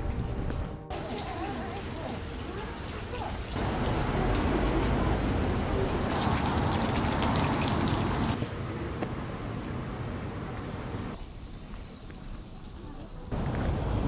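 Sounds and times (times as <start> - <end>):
light rain pattering: 0.9 - 13.3
faint high whine: 8.4 - 11.2.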